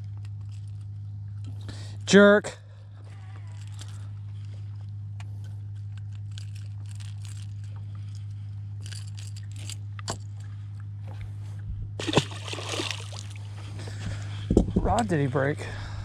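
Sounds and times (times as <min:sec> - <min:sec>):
low steady hum: 0:00.0 - 0:16.0
fish splashing into water: 0:12.0 - 0:13.5.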